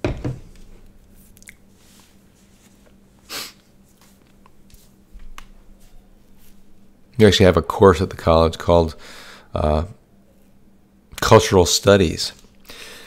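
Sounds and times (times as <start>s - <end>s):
steady low hum: 0.0s - 13.0s
short hissing noise: 3.3s - 3.7s.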